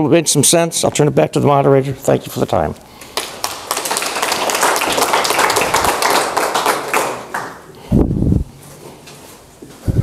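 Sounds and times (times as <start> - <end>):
audience applauding: 3.1 - 7.7.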